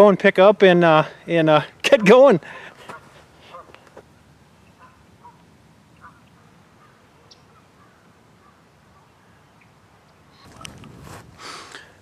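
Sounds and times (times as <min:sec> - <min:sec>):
faint bird calls: 0:02.8 - 0:04.0, 0:04.6 - 0:12.0.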